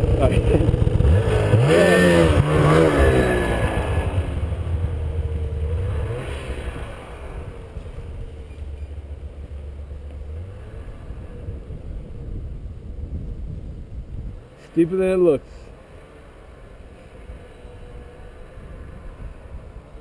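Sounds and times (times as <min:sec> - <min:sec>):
snowmobile engine revving: 0:00.0 - 0:08.5, 0:09.4 - 0:12.3
snowmobile low hum: 0:00.0 - 0:20.0.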